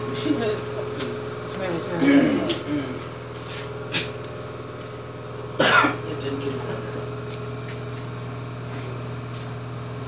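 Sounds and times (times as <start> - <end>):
steady low hum: 0.0 - 10.0
person coughing: 2.0 - 3.0, 3.9 - 4.2, 5.6 - 6.0.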